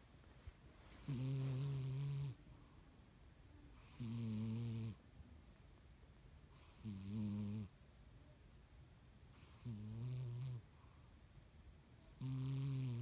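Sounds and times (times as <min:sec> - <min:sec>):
cat snoring: 0:00.9 - 0:02.4, 0:03.8 - 0:05.0, 0:06.5 - 0:07.7, 0:09.3 - 0:10.6, 0:12.1 - 0:13.0.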